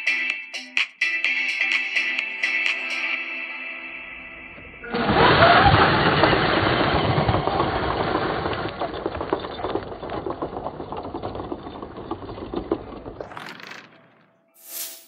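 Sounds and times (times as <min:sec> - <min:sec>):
tyres crunching gravel: 0:04.8 - 0:14.3.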